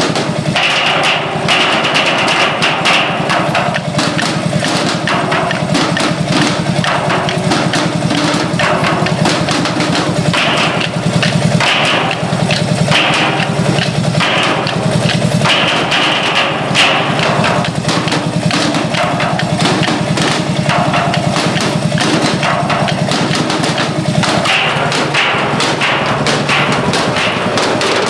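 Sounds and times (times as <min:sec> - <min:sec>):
drumming on steel drums: 0:00.0 - 0:28.0
stationary engine running: 0:00.0 - 0:28.0.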